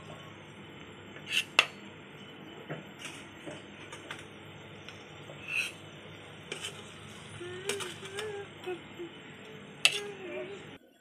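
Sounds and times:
steel spoon clinking on plate and pot: 9.8s - 10.2s.

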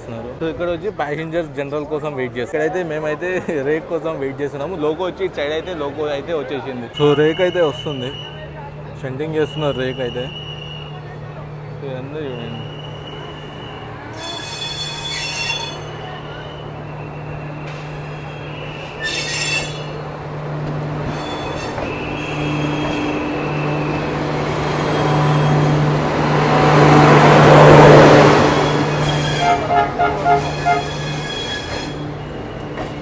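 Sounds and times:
train wheels squealing on rails: 6.8s - 11.4s, 12.0s - 20.2s, 21.0s - 26.4s, 27.5s - 33.0s.

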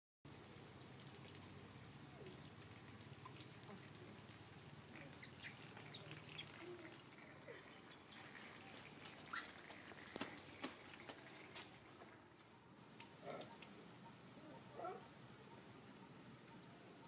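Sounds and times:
rain patter: 0.3s - 17.0s
young monkeys squeaking: 5.1s - 6.8s, 9.2s - 9.6s.

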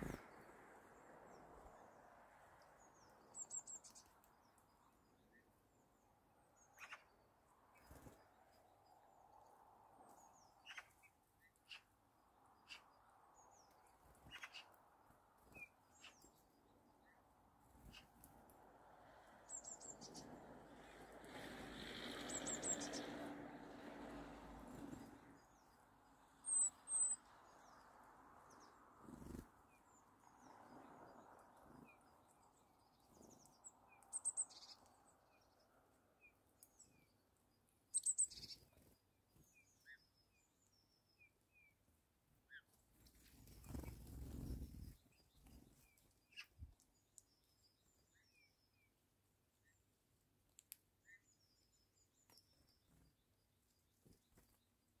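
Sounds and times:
songbirds chirping: 0.0s - 55.0s
sharp high-pitched bird calls: 10.6s - 11.0s.

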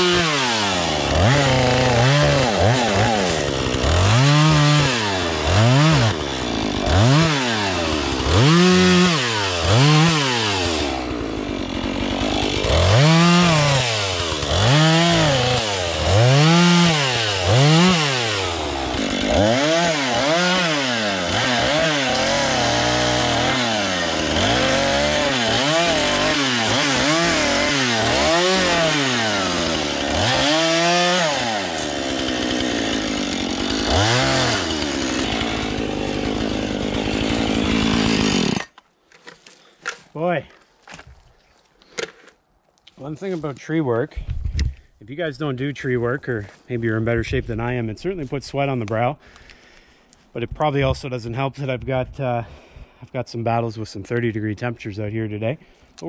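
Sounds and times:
chainsaw revving and idling: 0.0s - 38.7s.

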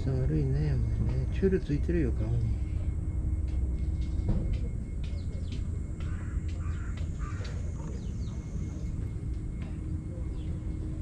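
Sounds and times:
low steady rumble: 0.0s - 11.0s
distant bird calls: 3.8s - 11.0s.

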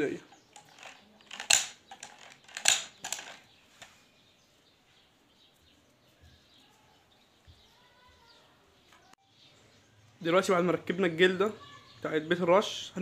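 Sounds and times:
sharp metal clacks: 0.6s - 3.4s.

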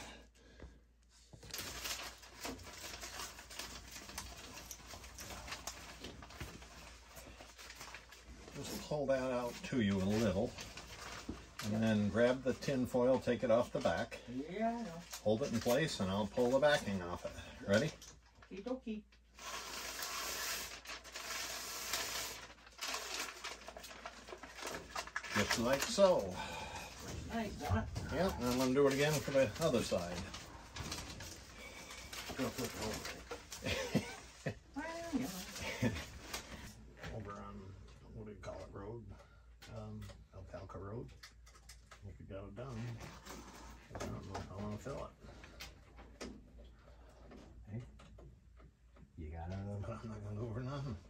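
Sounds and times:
paper rustling and crinkling: 1.3s - 14.1s, 14.8s - 17.9s, 19.4s - 36.8s
foil tape peeling and crackling: 1.4s - 13.0s, 19.3s - 26.4s, 27.0s - 36.7s.

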